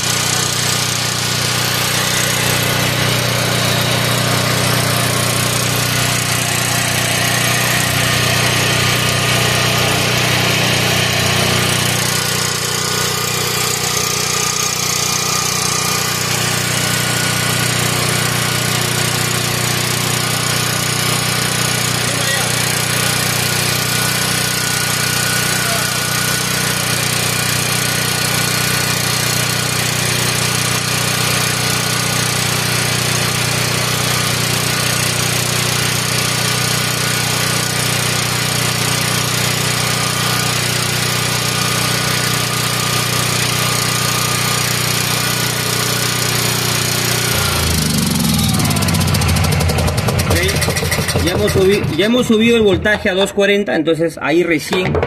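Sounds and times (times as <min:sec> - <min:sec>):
generator engine running: 0:00.0 - 0:55.0.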